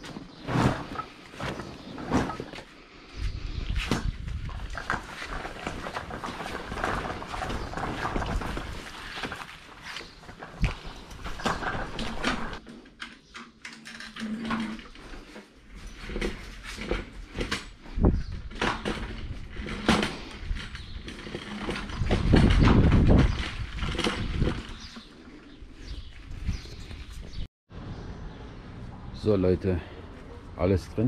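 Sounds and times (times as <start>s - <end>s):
boating gear knocking and clattering: 4.5s - 9.6s, 10.2s - 25.1s.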